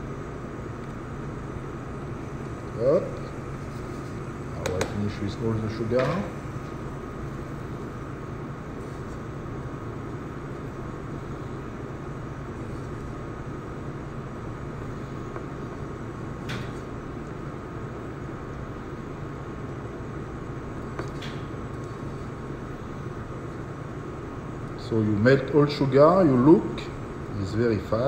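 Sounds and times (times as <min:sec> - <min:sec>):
machine hum: 0:00.0 - 0:28.0
light tap: 0:04.6 - 0:05.0.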